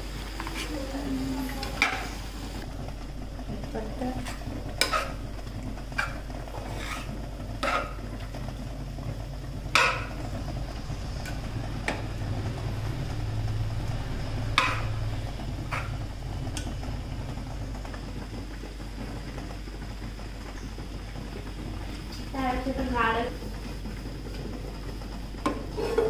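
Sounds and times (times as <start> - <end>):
steady low hum: 0.0 - 26.0
spoon scraping metal pot: 4.2 - 5.2, 5.9 - 8.0, 25.7 - 26.0.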